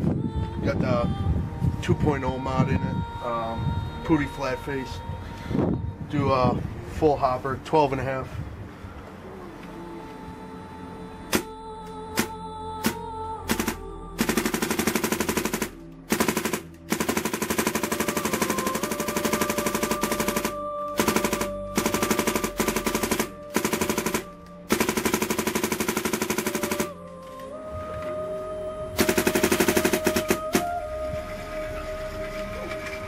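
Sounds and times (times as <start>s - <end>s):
paintball marker rapid firing: 12.2s - 26.9s, 29.0s - 30.7s.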